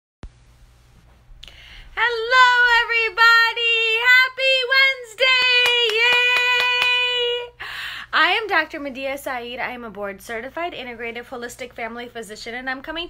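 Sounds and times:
woman singing: 0:02.0 - 0:07.6
hands clapping quickly: 0:05.3 - 0:07.2.

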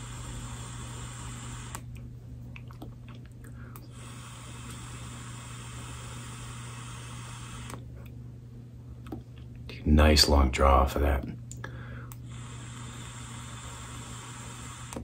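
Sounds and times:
air hissing through vape: 0:00.0 - 0:01.8, 0:03.9 - 0:07.8, 0:12.2 - 0:15.0
steady low hum: 0:00.0 - 0:15.0.

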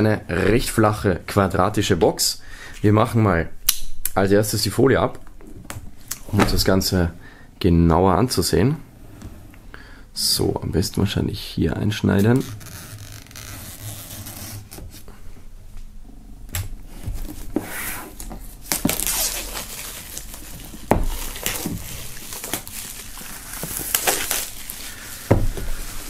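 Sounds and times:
plastic wrap crinkling and ripping: 0:12.3 - 0:14.9, 0:17.2 - 0:26.0.

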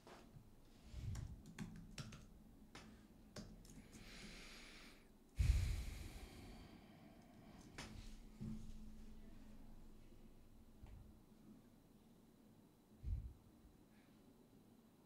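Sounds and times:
computer keys clicking: 0:01.2 - 0:02.3, 0:03.4 - 0:03.8.

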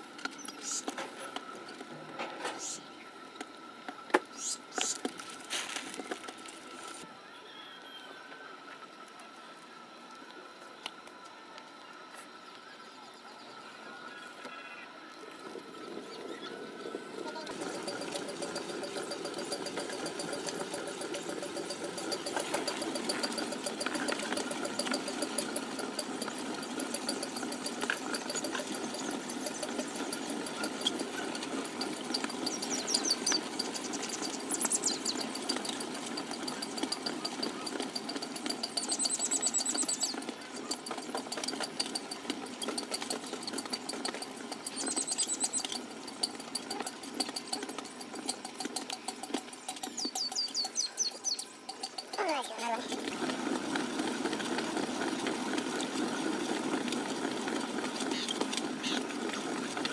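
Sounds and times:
potter's wheel rattling: 0:15.2 - 0:59.9
high chirping: 0:32.4 - 0:35.5, 0:38.7 - 0:40.2, 0:44.7 - 0:45.8, 0:49.9 - 0:52.6.

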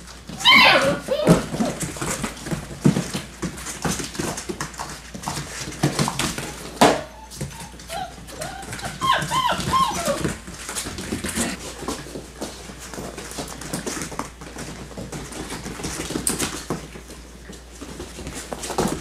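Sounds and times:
puppies scuffling: 0:00.0 - 0:19.0
puppy whimpers and yips: 0:00.3 - 0:01.8, 0:06.4 - 0:10.4.

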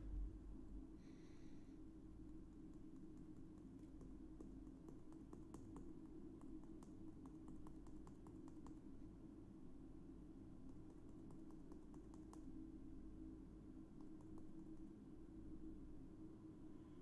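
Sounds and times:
fingers tapping plastic tube: 0:02.5 - 0:08.8, 0:10.6 - 0:12.5.

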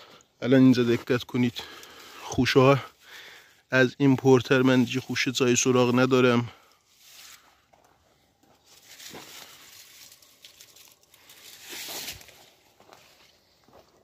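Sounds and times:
leaves rustling: 0:06.9 - 0:07.5, 0:08.6 - 0:13.4.

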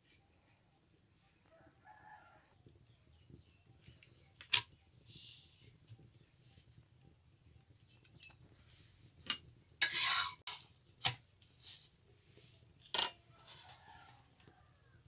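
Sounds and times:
metal spatula scraping griddle: 0:09.3 - 0:10.7, 0:12.8 - 0:14.2.

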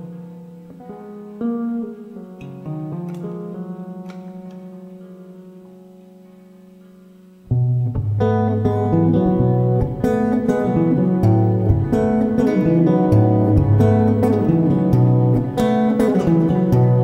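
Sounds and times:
electric guitar chords: 0:00.0 - 0:17.0
loud strummed guitar chord: 0:08.0 - 0:17.0.

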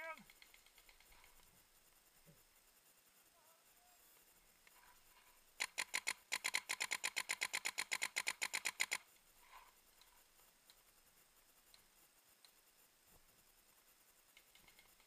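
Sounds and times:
paintball marker firing rapidly: 0:05.6 - 0:09.0.

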